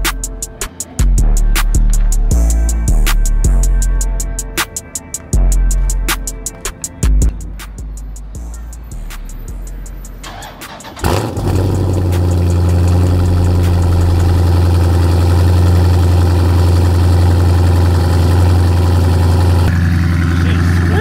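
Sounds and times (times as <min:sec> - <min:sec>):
car engine starting and idling: 0:09.3 - 0:21.0.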